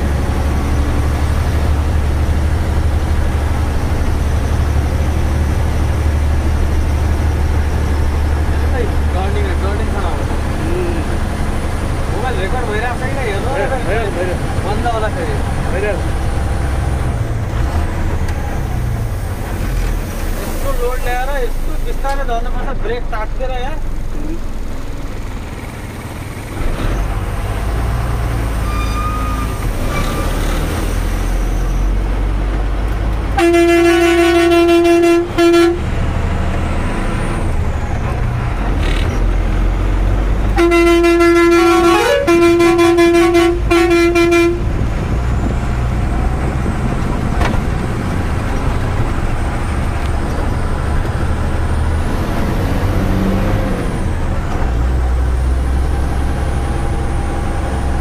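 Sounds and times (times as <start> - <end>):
diesel truck engine running: 0.0 - 58.0
truck horn blasts: 33.4 - 35.9, 40.5 - 44.7.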